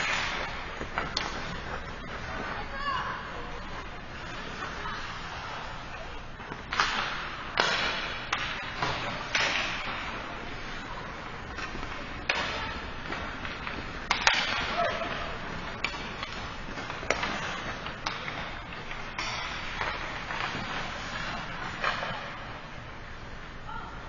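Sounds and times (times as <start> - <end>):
hockey sticks and puck cracking: 0.0 - 2.8, 3.8 - 23.3
skate blades scraping on ice: 11.6 - 22.6.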